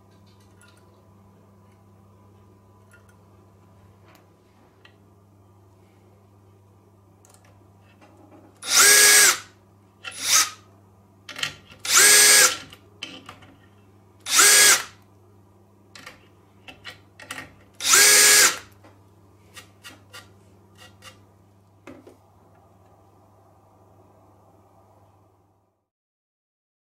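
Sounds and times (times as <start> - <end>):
electric screwdriver driving screws: 8.6 - 9.5, 10.1 - 10.6, 11.9 - 12.6, 14.3 - 15.0, 17.8 - 18.7.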